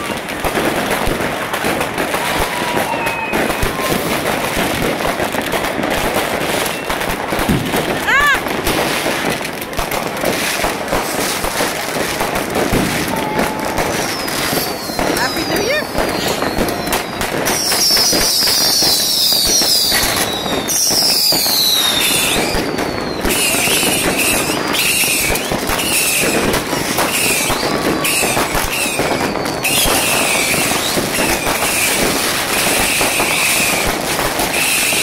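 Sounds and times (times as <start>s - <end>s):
falling firework whistles: 0.0s - 9.4s, 10.2s - 35.0s
firecrackers crackling and banging: 0.0s - 35.0s.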